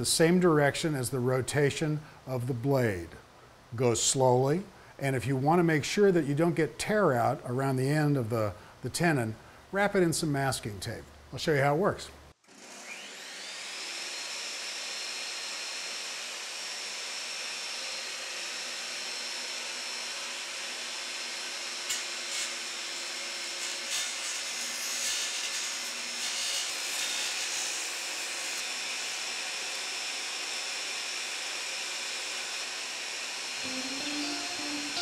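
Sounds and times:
table saw whining: 12.5 - 35.0.

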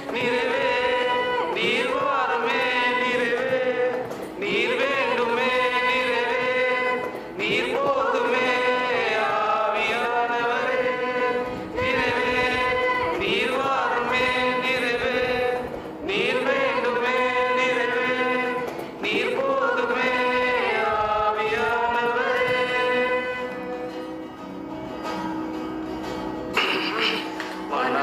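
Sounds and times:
group of people singing: 0.0 - 24.3, 26.6 - 28.0.

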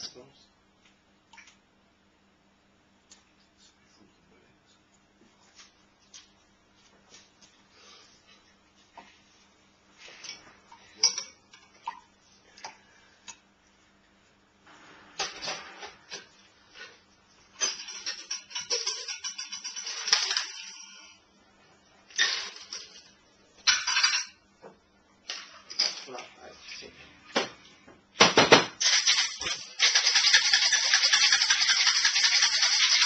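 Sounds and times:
glassware and shaker tin clattering: 17.5 - 21.0, 22.2 - 24.4, 28.8 - 33.0.

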